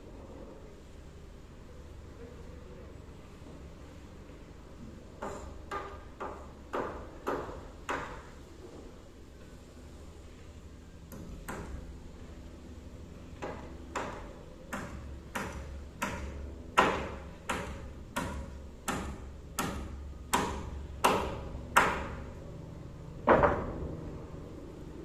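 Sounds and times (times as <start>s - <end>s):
hammer striking nails into timber: 13.4s - 22.3s.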